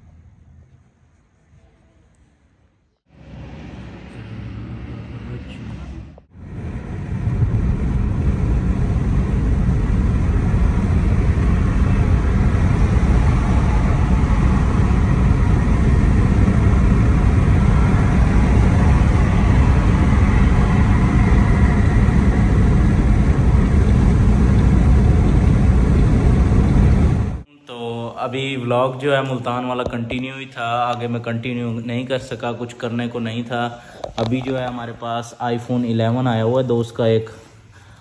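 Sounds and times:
car road and engine noise: 3.1 - 27.5.

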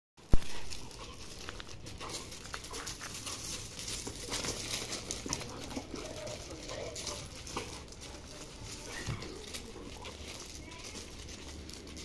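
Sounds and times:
dogs scuffling on gravel: 0.2 - 12.0
dog sounds: 0.4 - 12.0.

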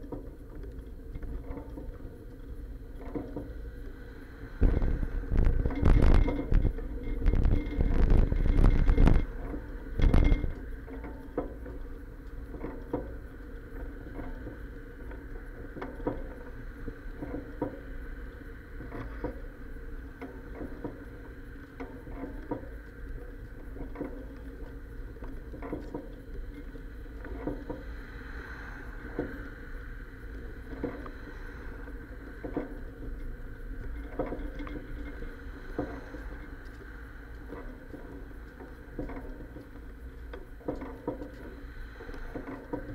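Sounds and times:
bicycle rumble on sidewalk: 0.0 - 42.9
bike frame clacks and bumps: 4.6 - 10.6.

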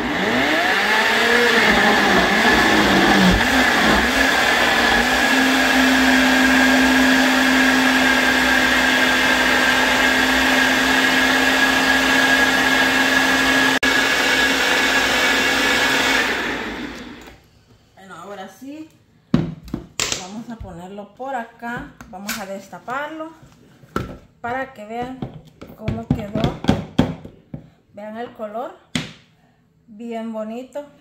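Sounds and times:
blender whining: 0.0 - 17.4.

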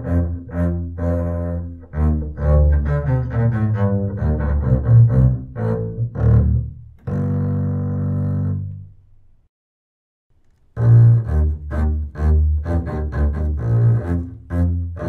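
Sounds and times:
bowed double bass: 0.0 - 9.2, 10.7 - 15.0.

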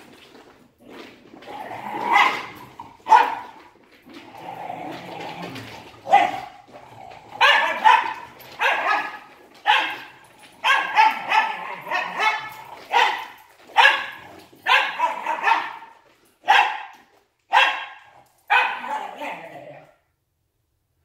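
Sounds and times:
dogs barking: 2.0 - 3.7, 6.1 - 6.7, 7.3 - 19.5.

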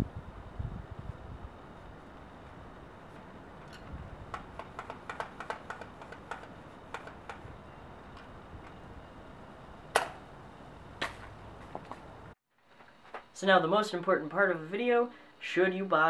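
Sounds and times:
loud sharp crack: 9.9 - 10.2.

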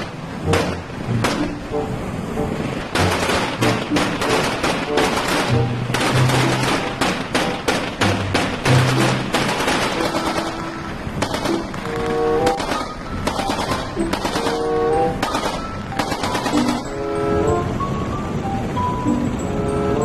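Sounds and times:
background music with melody: 0.0 - 20.0
machine gun firing in bursts: 3.0 - 11.6, 12.6 - 14.6, 15.2 - 16.9.

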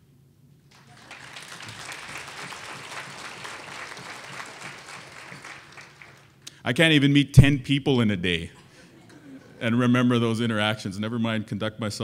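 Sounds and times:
audience applauding: 0.7 - 6.4.

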